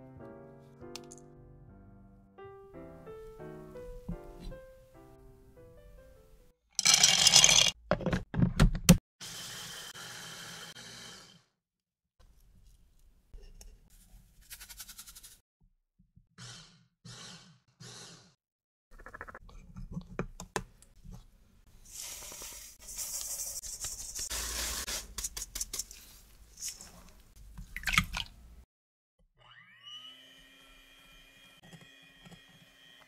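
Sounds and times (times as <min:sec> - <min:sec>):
electric food chopper grinding: 0:09.2 - 0:11.5, 0:29.4 - 0:33.0
electric hand mixer whine: 0:09.2 - 0:11.5, 0:29.4 - 0:33.0.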